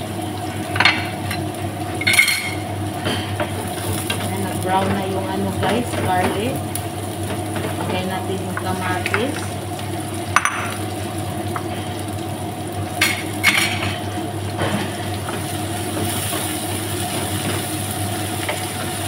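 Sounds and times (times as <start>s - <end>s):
vegetables sizzling in a frying pan: 0.0s - 19.0s
low hum: 8.6s - 18.2s.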